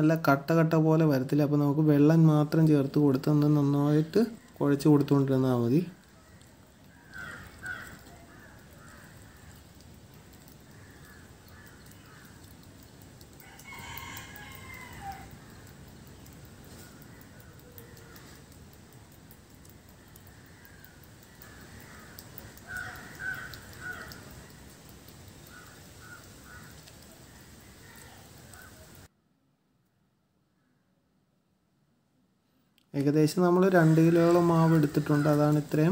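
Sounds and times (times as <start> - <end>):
low steady background noise: 0.0 - 35.9
rooster crowing: 7.0 - 9.5, 13.4 - 15.6, 21.4 - 24.2.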